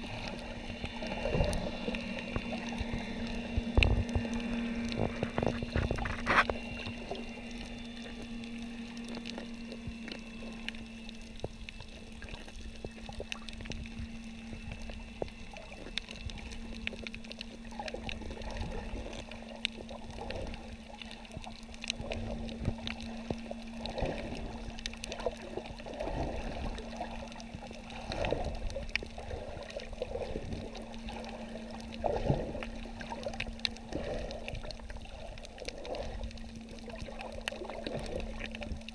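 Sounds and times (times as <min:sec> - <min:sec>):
muffled underwater sloshing: 0:00.0 - 0:38.9
steady low hum: 0:00.0 - 0:38.9.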